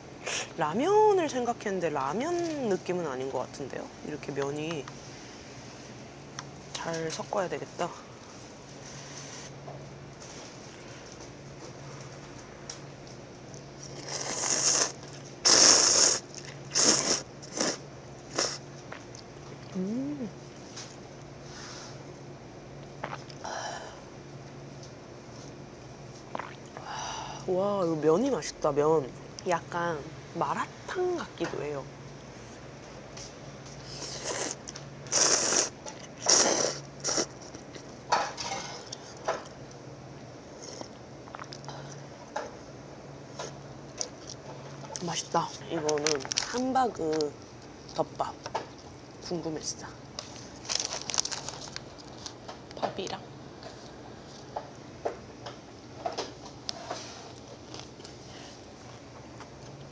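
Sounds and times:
low steady hum: 0.0 - 59.9
person slurping noodles: 14.0 - 18.6, 33.9 - 37.3.

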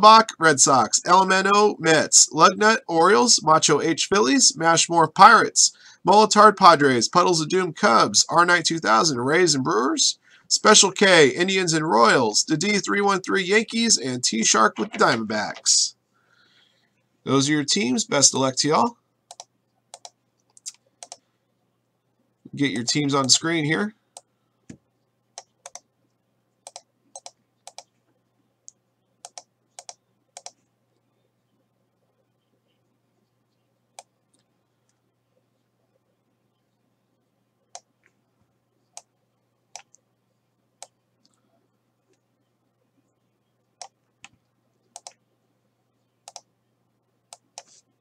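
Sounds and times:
faint low hum: 0.0 - 48.0
computer keyboard keys clicking: 19.3 - 21.2, 25.4 - 25.9, 26.7 - 27.9, 29.2 - 30.6.

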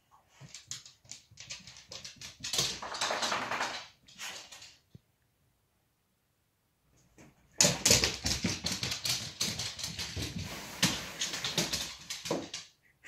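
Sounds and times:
dog claws clicking on floor: 0.3 - 4.9, 7.6 - 12.7.

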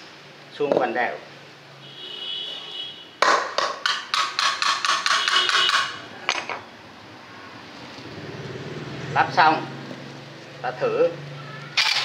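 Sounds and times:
hammer tapping on metal: 3.2 - 6.6.

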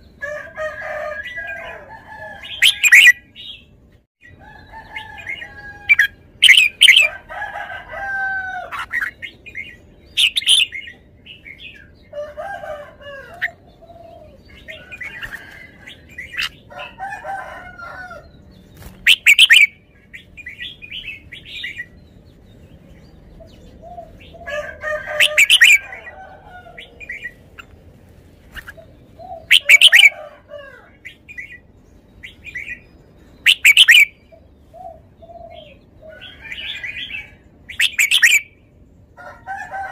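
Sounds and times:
bird chattering warbles: 2.4 - 3.3, 5.2 - 7.1, 8.7 - 11.0, 18.8 - 22.0, 25.1 - 26.1, 28.5 - 30.2, 33.4 - 34.2, 37.7 - 38.5
bird whistled phrases: 33.5 - 34.2, 37.8 - 38.5.

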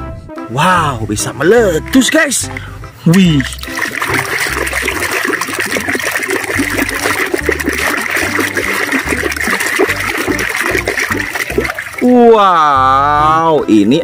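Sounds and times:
soapy water sloshing: 1.9 - 12.4.

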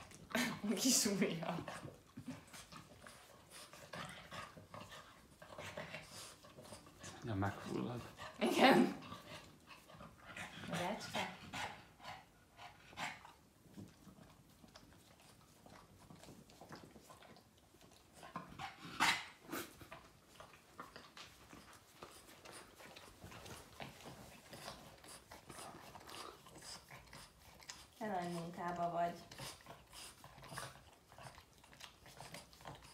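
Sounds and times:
dog licking wetly: 19.6 - 32.9.

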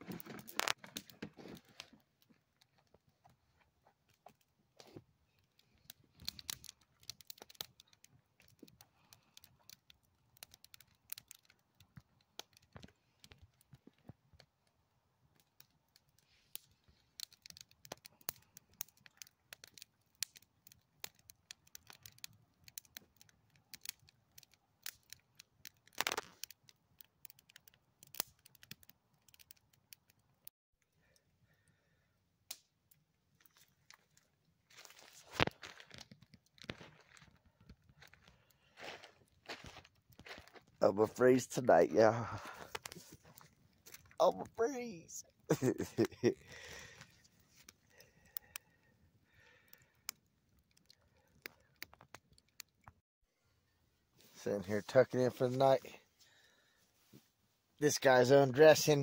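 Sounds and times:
campfire crackling: 0.0 - 59.0
sharp fire pops: 25.8 - 26.6.

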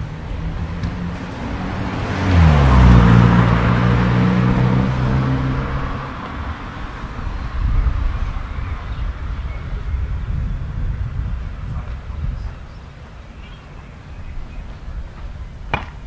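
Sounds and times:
car driving past: 0.0 - 9.4.

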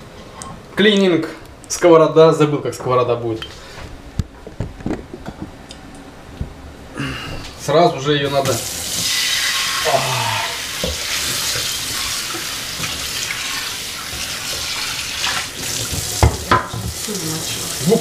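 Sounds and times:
tap water splashing on a pan: 10.8 - 17.9.

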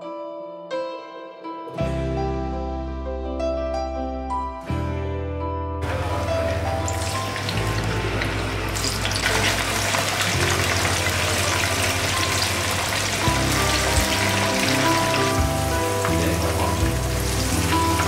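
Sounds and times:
background music: 0.0 - 18.0
food deep-frying in hot oil: 5.8 - 18.0.

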